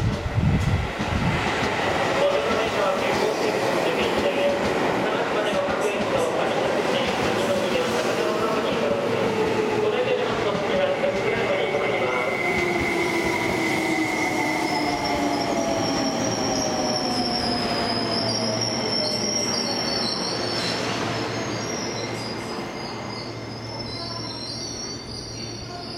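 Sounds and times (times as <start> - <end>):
electric train hum: 0.0 - 19.3
high wheel squeal: 11.8 - 25.9.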